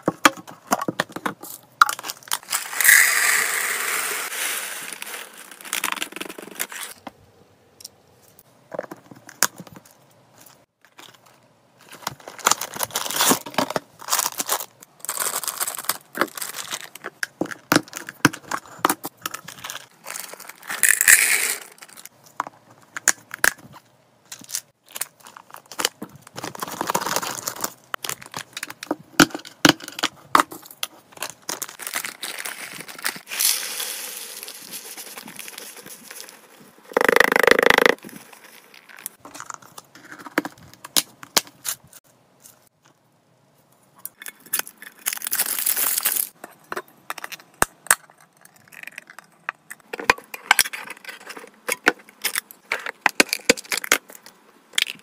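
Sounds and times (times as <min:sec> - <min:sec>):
foil bag crinkling: 0:02.0 - 0:07.0, 0:11.0 - 0:17.2, 0:24.4 - 0:28.9, 0:31.2 - 0:36.8, 0:38.0 - 0:39.7
dry food pouring into plastic tub: 0:02.7 - 0:05.7, 0:33.2 - 0:35.5.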